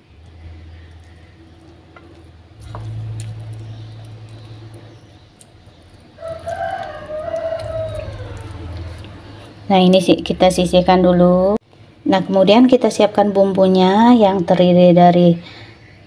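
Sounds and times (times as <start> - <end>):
low steady hum: 0.0 - 16.0
rooster crowing: 6.2 - 9.4.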